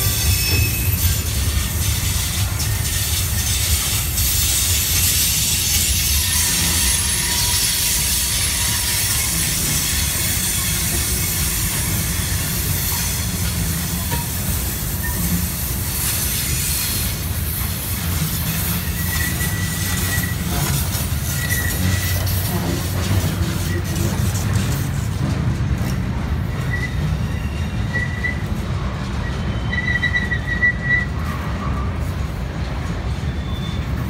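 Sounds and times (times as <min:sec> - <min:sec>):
faint wheel squeal: 0:00.0 - 0:03.2, 0:03.9 - 0:14.1, 0:18.5 - 0:22.6, 0:26.5 - 0:32.2, 0:33.1 - 0:34.0
freight train rumbling: 0:00.0 - 0:34.0
wheels hissing on rail: 0:00.0 - 0:34.0.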